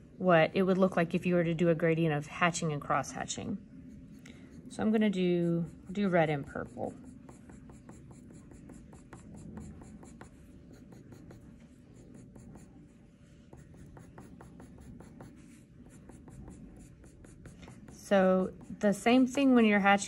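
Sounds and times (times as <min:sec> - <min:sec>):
pencil scratching on paper: 0:03.8 - 0:19.5.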